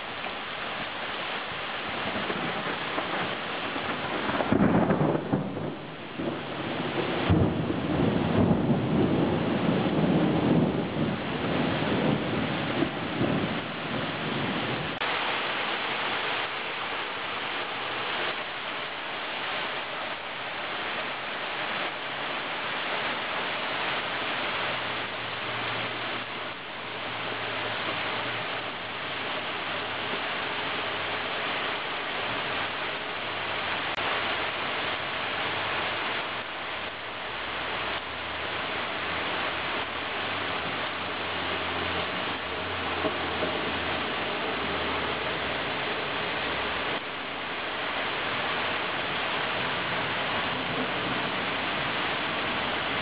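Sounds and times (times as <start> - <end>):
heavy rain falling: 0.0 - 53.0
low thunder rumble: 1.9 - 15.0, 49.5 - 53.0.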